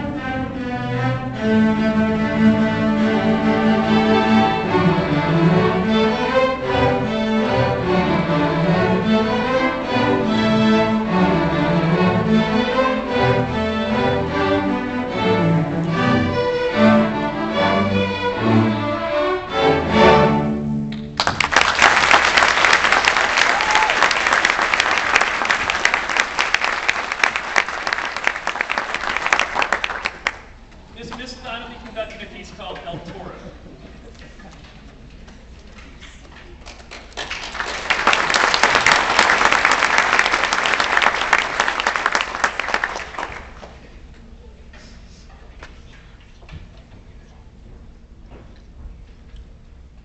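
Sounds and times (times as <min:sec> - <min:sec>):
string orchestra playing: 0:00.0 - 0:21.2
audience applause: 0:21.0 - 0:30.5, 0:36.5 - 0:43.8.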